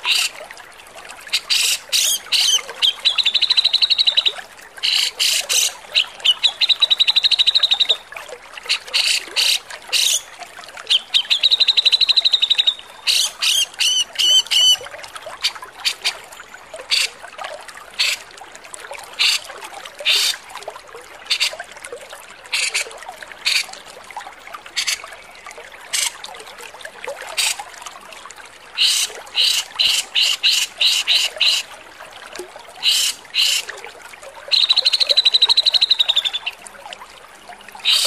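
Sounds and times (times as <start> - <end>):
bird harsh rasping calls: 23.5 - 23.7, 28.8 - 31.6, 32.8 - 33.6.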